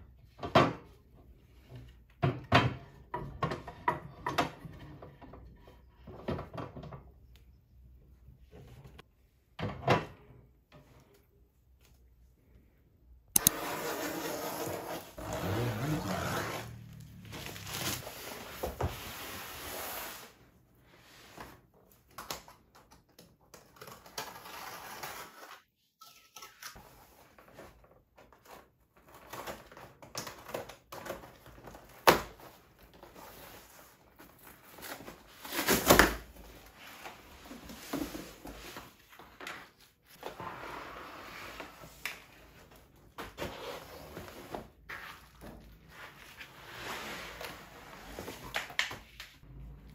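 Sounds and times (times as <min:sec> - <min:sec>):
cardboard rustling and tearing: 0:13.6 - 0:18.5.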